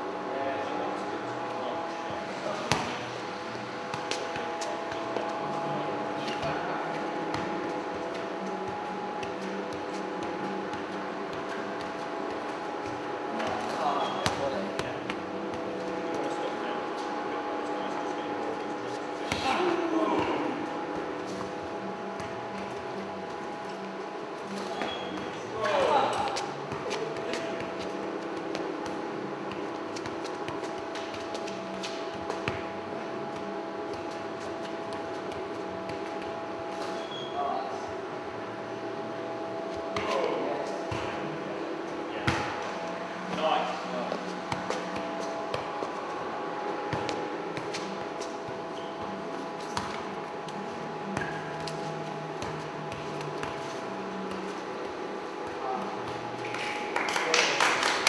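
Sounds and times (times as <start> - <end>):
steady hum: 0.0 - 58.0
football kicks: 2.6 - 3.2, 42.2 - 46.0
football thud on foot: 42.2 - 42.6.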